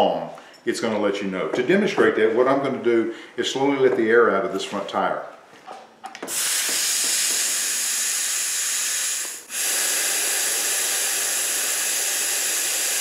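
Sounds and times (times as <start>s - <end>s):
air hissing from tire valve: 6.3s - 13.0s.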